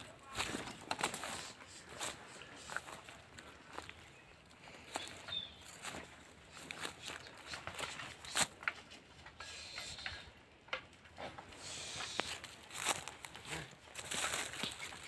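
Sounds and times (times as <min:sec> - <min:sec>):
footsteps crunching on soil: 0:00.0 - 0:08.9, 0:11.8 - 0:15.0
rustle: 0:11.0 - 0:15.0.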